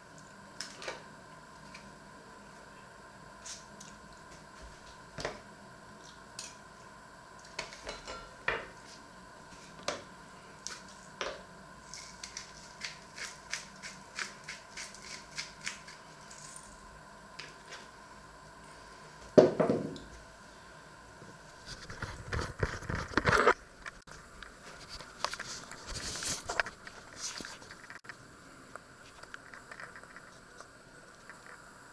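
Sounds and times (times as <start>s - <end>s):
loud knock on table: 19.4s - 20.0s.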